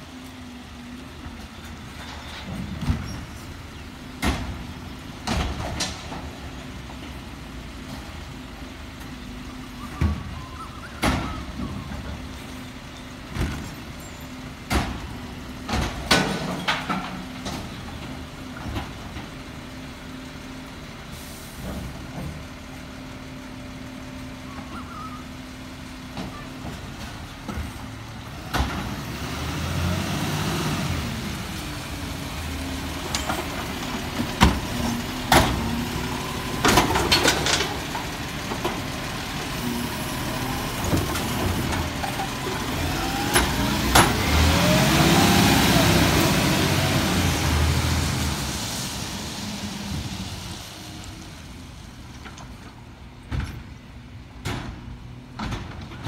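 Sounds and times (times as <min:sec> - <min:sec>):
bins banging against hopper: 0:14.6 - 0:19.4, 0:33.0 - 0:39.0, 0:40.3 - 0:44.8
garbage truck idling: 0:31.0 - 0:53.2.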